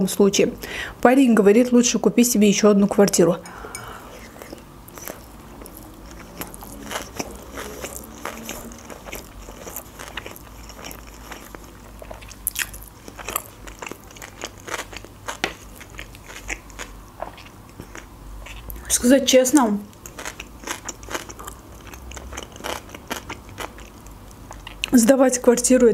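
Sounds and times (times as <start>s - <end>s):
chewing with wet mouth clicks: 4.2s - 18.9s, 19.9s - 24.9s.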